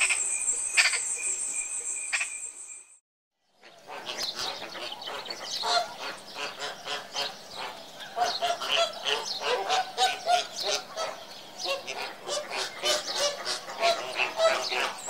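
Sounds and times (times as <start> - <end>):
flamingos honking: 3.7 - 15.0.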